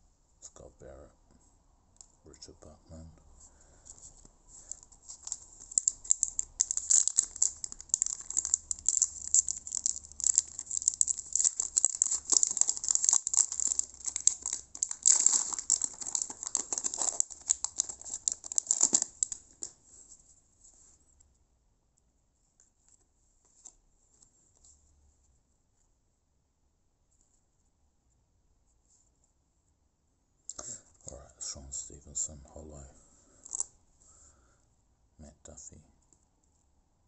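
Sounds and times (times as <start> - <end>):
foil wrapper crinkling: 4.6 - 19.8.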